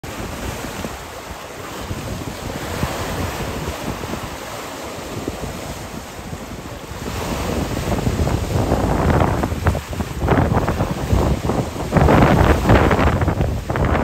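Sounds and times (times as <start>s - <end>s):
gusty wind buffeting microphone: 0.0s - 14.0s
lake waves sloshing and breaking: 0.0s - 14.0s.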